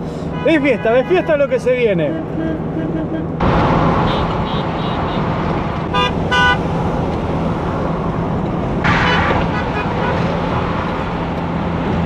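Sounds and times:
car road noise on highway: 0:00.0 - 0:12.0.

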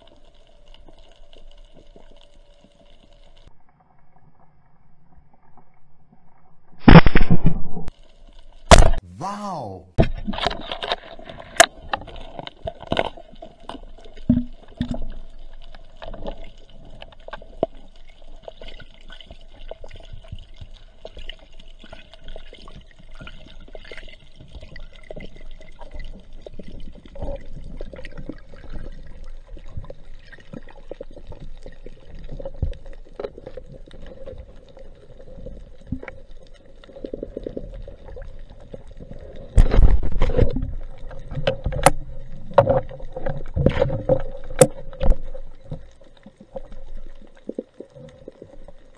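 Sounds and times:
underwater hum: 0:25.0 - 0:48.9
sharp clicks underwater: 0:39.5 - 0:47.9.

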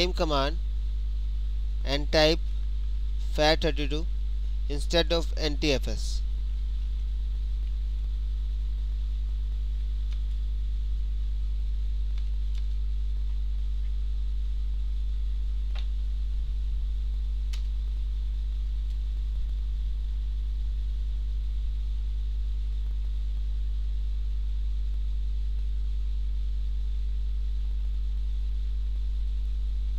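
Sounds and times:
electrical mains hum: 0:00.0 - 0:29.9.

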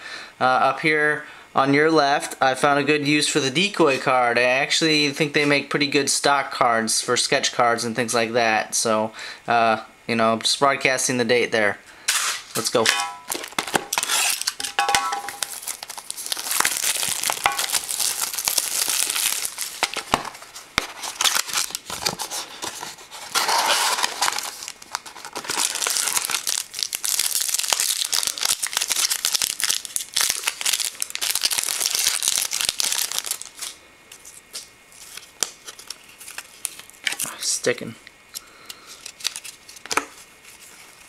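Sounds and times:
plastic wrapping crinkling: 0:12.4 - 0:37.4, 0:38.8 - 0:41.0.

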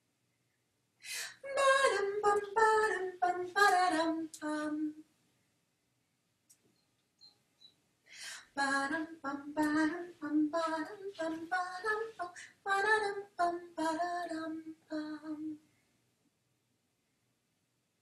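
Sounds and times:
woman singing unaccompanied: 0:01.2 - 0:05.0, 0:08.3 - 0:15.6.

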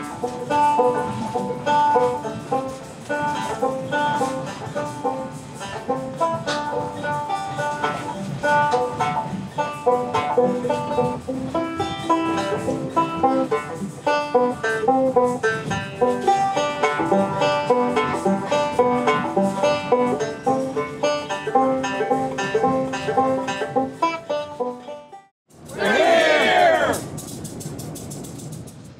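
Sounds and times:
bluegrass plucked string music: 0:00.0 - 0:25.3.

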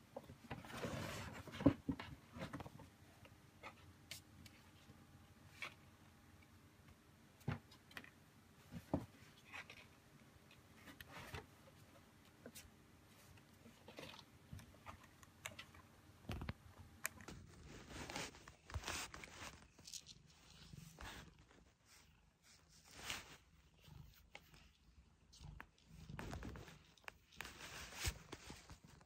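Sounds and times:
kittens scuffling in cardboard box: 0:00.5 - 0:02.9, 0:17.3 - 0:24.3, 0:26.0 - 0:29.0.

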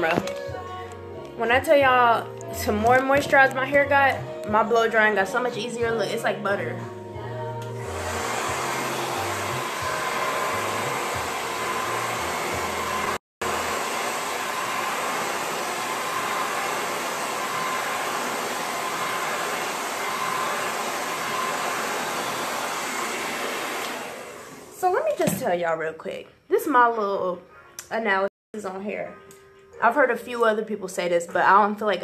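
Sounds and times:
hair dryer blowing: 0:07.6 - 0:25.2.

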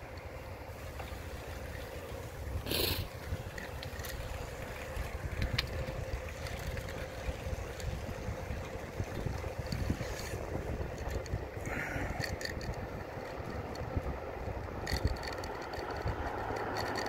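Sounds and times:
bicycle tyres on asphalt: 0:00.0 - 0:17.0
wind rumbling on microphone: 0:00.0 - 0:17.0
short rattle: 0:14.5 - 0:17.0.

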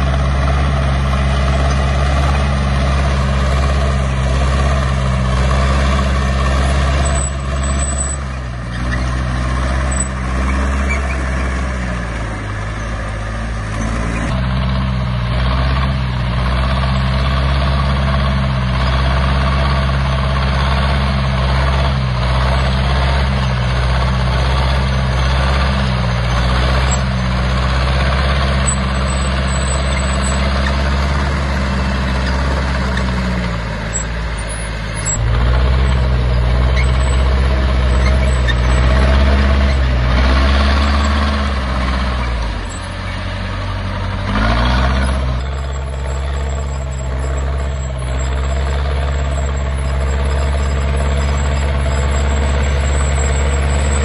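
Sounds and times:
bulldozer diesel engine droning: 0:00.0 - 0:54.0.

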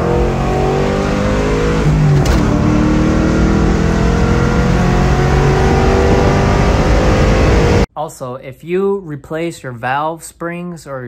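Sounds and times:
car engine accelerating: 0:00.0 - 0:07.9.

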